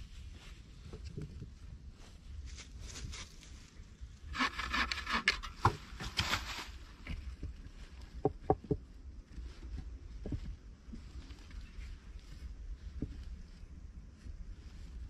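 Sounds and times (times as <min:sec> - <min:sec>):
rough scraping: 0:04.2 - 0:07.4.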